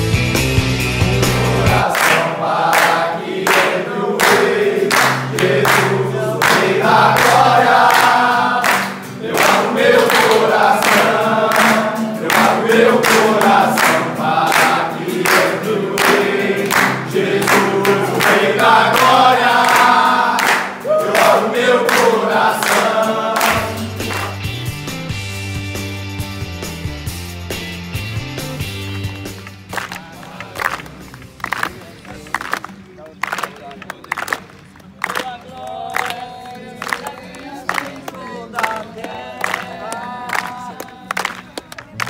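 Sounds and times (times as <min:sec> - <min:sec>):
hands clapping steady beat: 0:01.1 - 0:42.0
men singing in chorus: 0:01.4 - 0:24.1, 0:29.9 - 0:30.8, 0:35.4 - 0:41.4.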